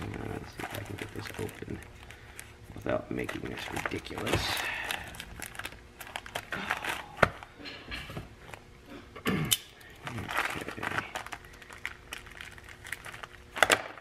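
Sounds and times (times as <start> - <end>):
plastic pouch crinkling: 0.0 - 7.5, 9.9 - 14.0.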